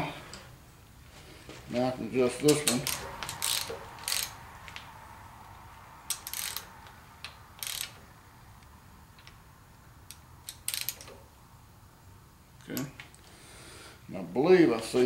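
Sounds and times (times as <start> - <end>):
socket ratchet clicking: 2.5 - 4.4, 6.1 - 9.4, 10.0 - 11.2.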